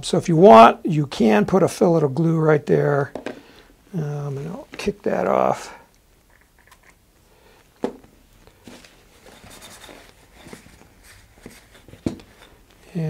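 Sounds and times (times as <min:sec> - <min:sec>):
paper towel rustling: 0:07.6 - 0:13.0.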